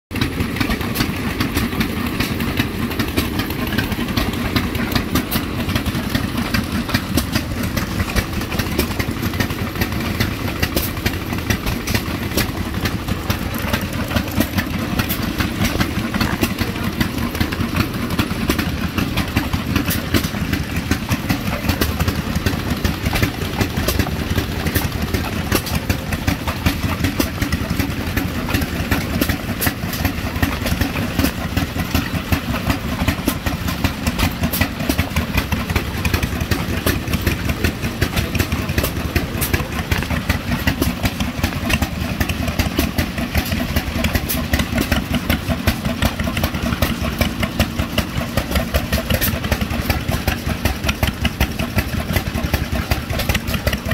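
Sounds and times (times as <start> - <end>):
gas engines idling: 0.1 - 53.9.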